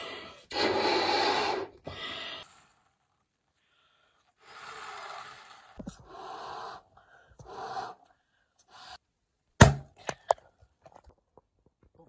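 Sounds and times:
person blowing up balloon: 0:00.0 - 0:02.6, 0:04.4 - 0:06.8.

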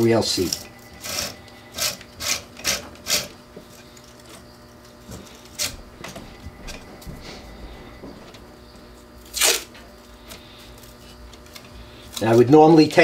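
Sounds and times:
tape pulled off a roll: 0:09.2 - 0:12.2.

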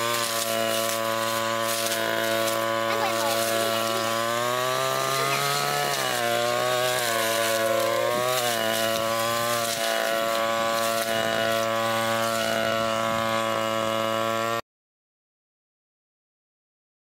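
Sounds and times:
brush cutter engine cutting grass: 0:00.0 - 0:14.6.

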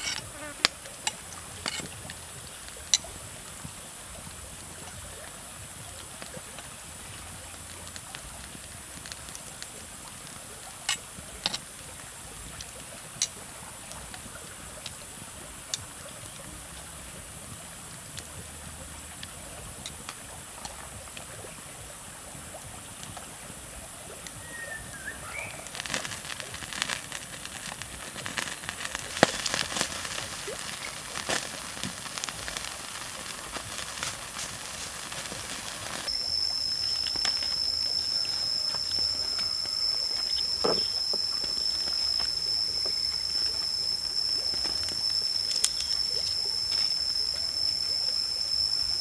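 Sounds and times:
octopus sizzling on hot stone: 0:00.0 - 0:49.0
wood fire crackling: 0:00.0 - 0:49.0.

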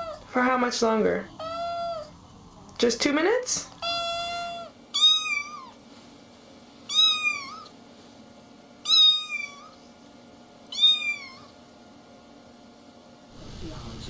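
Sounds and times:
kitten meowing: 0:01.4 - 0:02.1, 0:03.8 - 0:05.8, 0:06.9 - 0:07.7, 0:08.8 - 0:09.8, 0:10.7 - 0:11.5.

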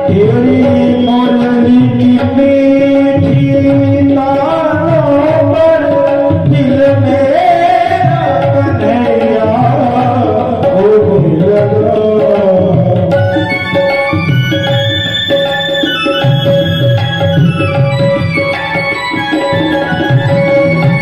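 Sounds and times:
man singing: 0:00.0 - 0:13.8
electronic keyboard: 0:00.0 - 0:21.0
tabla rhythm: 0:00.0 - 0:21.0.

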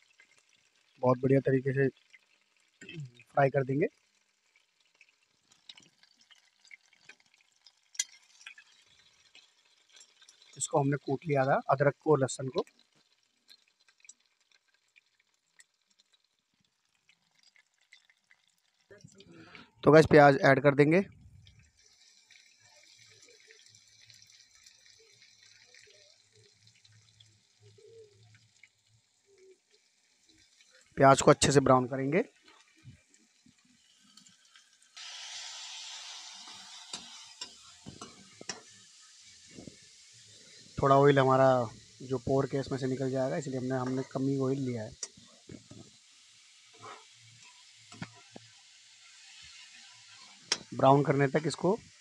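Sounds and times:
faint sizzle of onions frying: 0:00.0 - 0:20.1, 0:21.3 - 0:52.0
garlic crackling in hot oil: 0:00.0 - 0:52.0
metal spatula stirring: 0:05.5 - 0:10.6, 0:32.3 - 0:46.0, 0:46.7 - 0:51.7.

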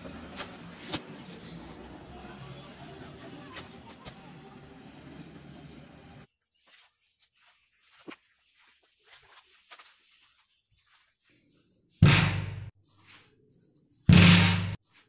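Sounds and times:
loud heavy thump: 0:12.0 - 0:12.7.

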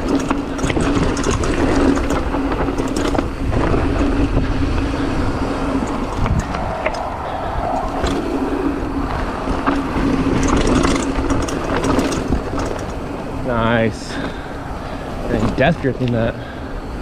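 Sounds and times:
bike tyres on dirt and stones: 0:00.0 - 0:17.0
chain and bike rattling: 0:00.0 - 0:17.0
freehub buzzing: 0:00.0 - 0:17.0
wind rumbling on microphone: 0:00.0 - 0:17.0.

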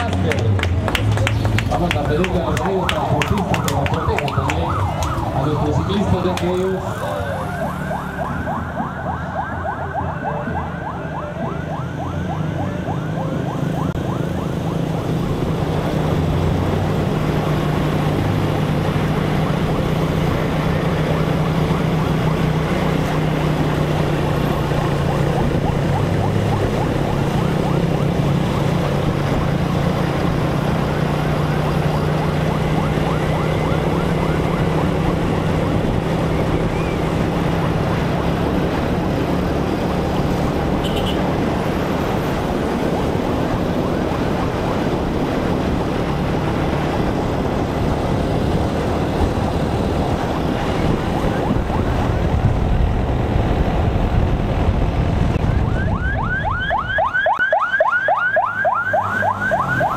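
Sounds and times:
vehicle engine running: 0:00.0 - 0:09.0
wind and road noise: 0:00.0 - 0:59.9
warbling siren: 0:02.3 - 0:40.9, 0:41.5 - 0:53.3, 0:55.3 - 0:59.9.

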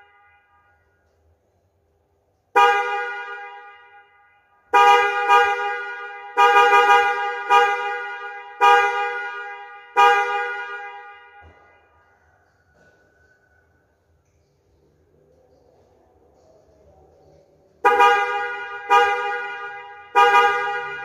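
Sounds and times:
two-tone car horn honking: 0:02.5 - 0:12.1, 0:17.8 - 0:21.0.

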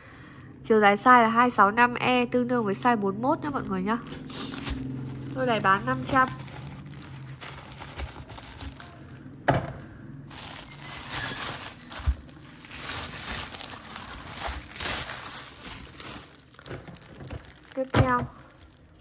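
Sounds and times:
packing material crinkling: 0:03.4 - 0:09.3, 0:10.3 - 0:19.0.

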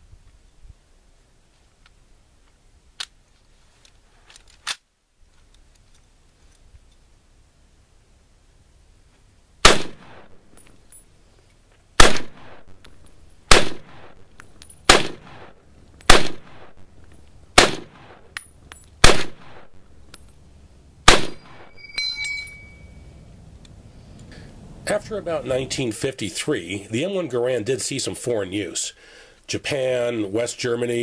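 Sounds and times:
rifle shots with echo: 0:09.6 - 0:10.4, 0:12.0 - 0:12.8, 0:13.5 - 0:16.9, 0:17.6 - 0:18.3, 0:19.0 - 0:19.8, 0:21.0 - 0:21.8
ejected clip ringing ping: 0:21.7 - 0:23.1.

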